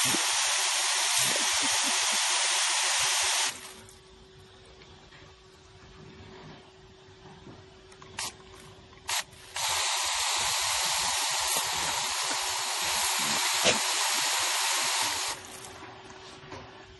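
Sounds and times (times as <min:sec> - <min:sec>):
water spraying with a hiss: 0:00.0 - 0:03.8, 0:09.1 - 0:15.7.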